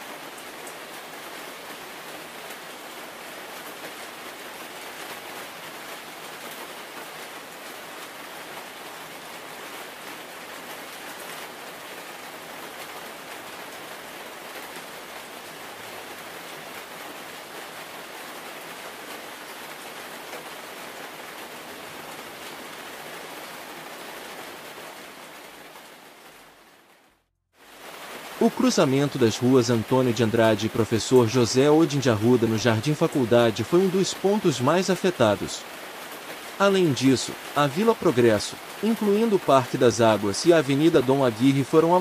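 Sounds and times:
steady rain hiss: 0.0s - 42.0s.

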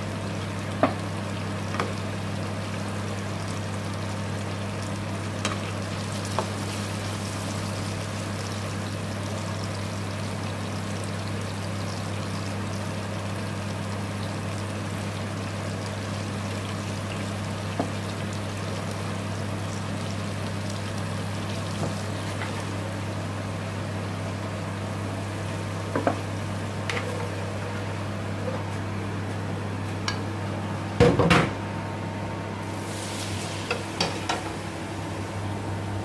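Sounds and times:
food sizzling in a pan: 0.1s - 24.2s, 32.6s - 35.5s.

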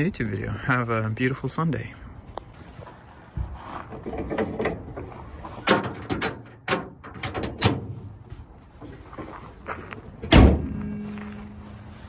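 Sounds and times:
sharp clicks and knocks: 5.6s - 7.9s
car hood slamming shut: 10.3s - 10.8s.

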